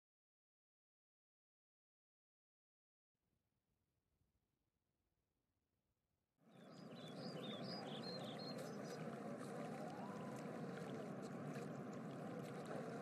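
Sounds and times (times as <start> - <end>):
small birds chirping: 6.5 - 13.0
steady outdoor background noise: 6.5 - 13.0.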